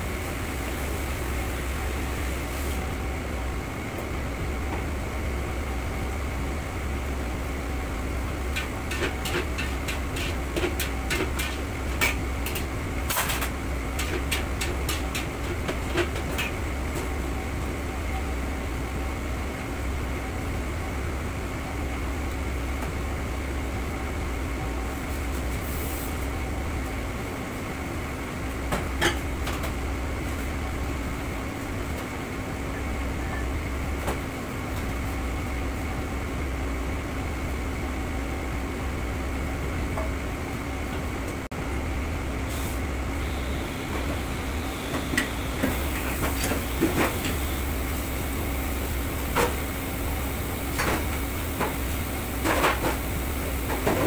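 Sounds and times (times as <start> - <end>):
kitchen ventilation hum: 0.0 - 54.0
metal pans and utensils clanking: 8.5 - 16.6.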